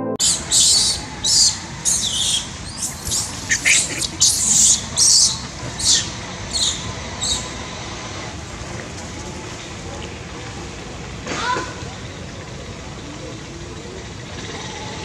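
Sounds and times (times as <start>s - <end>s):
baby monkey screaming: 0.2s - 7.5s.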